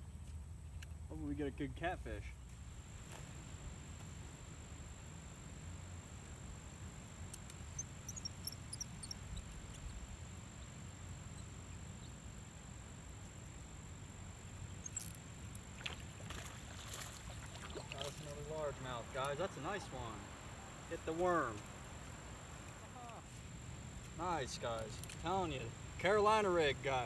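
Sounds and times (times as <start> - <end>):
faint high chirps: 7.4 - 12.2, 14.5 - 15.2
high-pitched insect drone: 7.6 - 12.1, 14.4 - 21.7.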